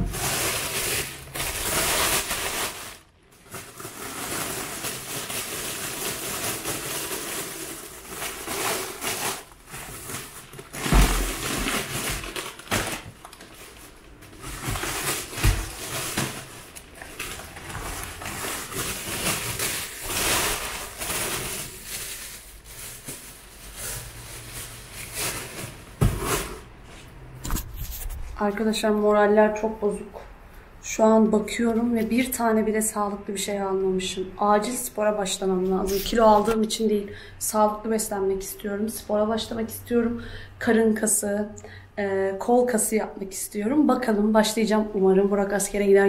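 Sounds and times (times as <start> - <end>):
plastic bag and wrappers rustling: 0.0 - 26.7, 35.3 - 36.7.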